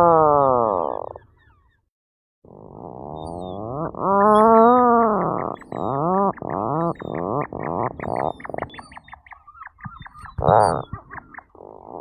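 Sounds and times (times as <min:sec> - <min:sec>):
faint high bird chirps: 0:00.8 - 0:01.9, 0:03.1 - 0:12.0
puffin calling: 0:03.0 - 0:12.0.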